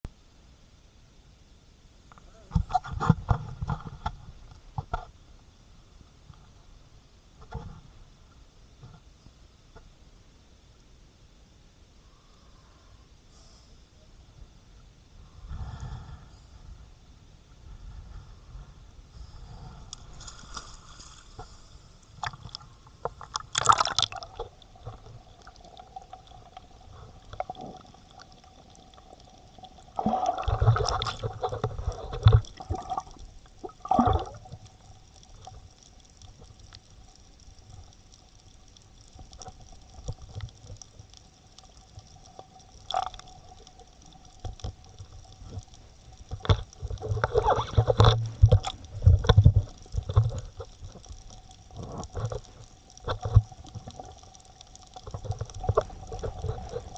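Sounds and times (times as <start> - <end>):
faint steady tones: 3.5 - 56.9
water sloshing and gurgling: 19.6 - 56.9.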